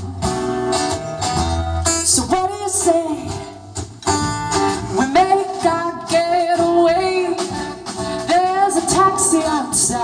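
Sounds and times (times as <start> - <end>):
acoustic guitars: 0.0 - 10.0
upright bass: 0.0 - 10.0
person singing: 4.7 - 10.0.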